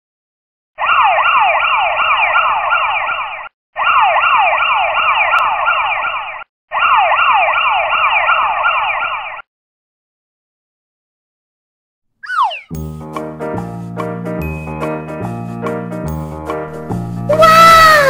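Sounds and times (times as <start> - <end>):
electronic siren alarm: 0.8 - 9.5, 12.2 - 12.8.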